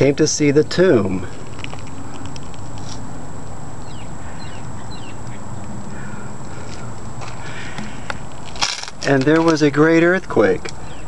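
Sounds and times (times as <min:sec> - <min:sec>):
bird chirps: 0:03.8 - 0:06.3, 0:10.8 - 0:11.0.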